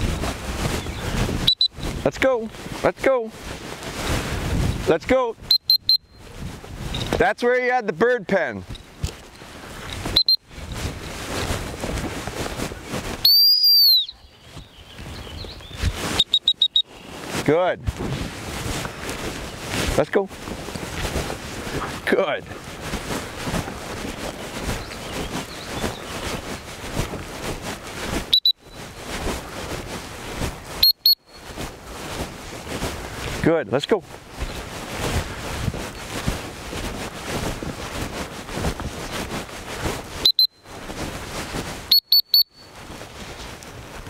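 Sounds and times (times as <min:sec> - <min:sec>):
wind noise: 0:00.0 - 0:07.6, 0:08.6 - 0:44.0
footsteps through grass: 0:00.0 - 0:42.0, 0:42.6 - 0:44.0
dog whistle blast: 0:13.2 - 0:14.2, 0:16.2 - 0:16.8.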